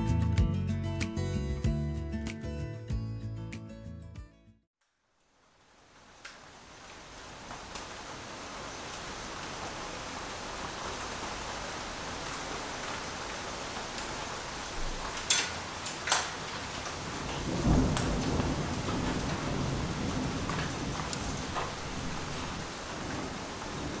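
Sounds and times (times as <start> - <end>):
steady rain: 4.8 - 24.0.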